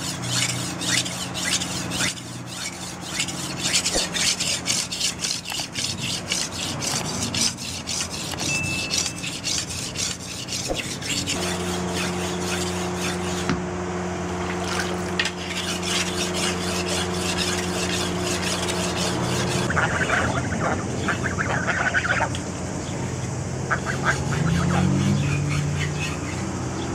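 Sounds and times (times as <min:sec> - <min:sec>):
blade rasping on sharpening stone: 0:00.0 - 0:13.5, 0:14.7 - 0:19.7, 0:24.0 - 0:26.5.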